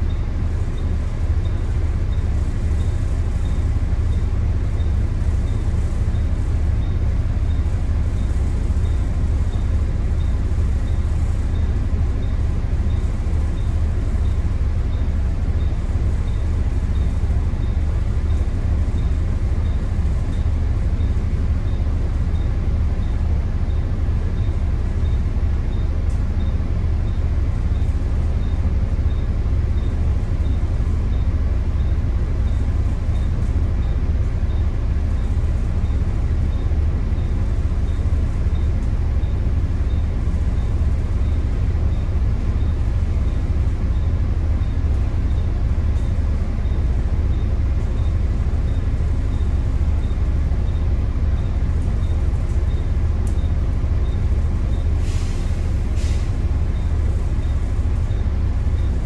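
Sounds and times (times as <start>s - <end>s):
diesel bus engine idling: 0.0s - 59.0s
faint regular ticking: 42.7s - 54.8s.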